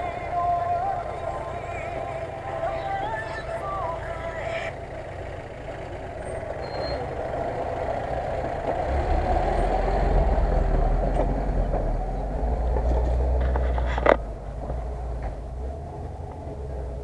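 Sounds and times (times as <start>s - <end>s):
car engine driving past: 0.0s - 17.0s
deep low rumble: 5.9s - 17.0s.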